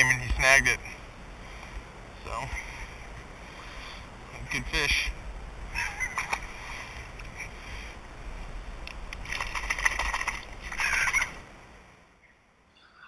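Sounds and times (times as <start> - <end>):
fish splashing water: 9.2 - 11.3.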